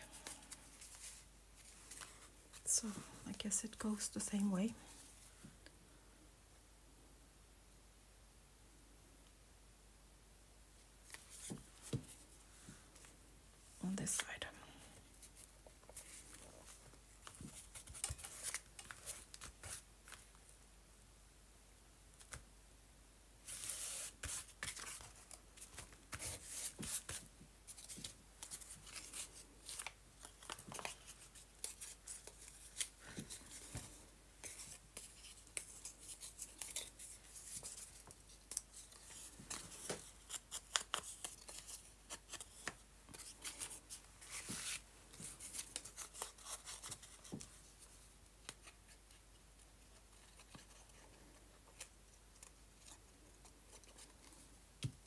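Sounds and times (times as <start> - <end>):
paper rustling and crinkling: 0.0 - 2.7, 15.2 - 20.4, 23.4 - 49.2.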